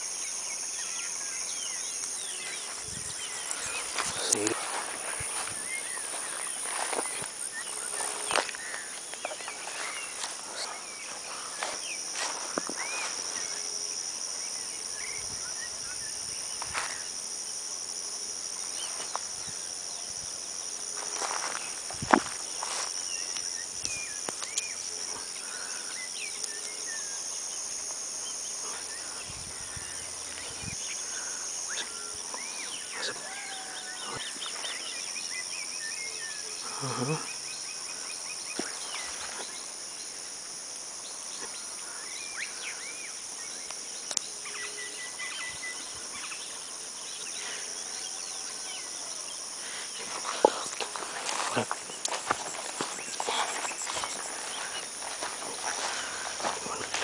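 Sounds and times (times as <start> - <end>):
birds chirping: 0.0 - 17.7, 41.0 - 57.0
insects buzzing: 0.0 - 57.0.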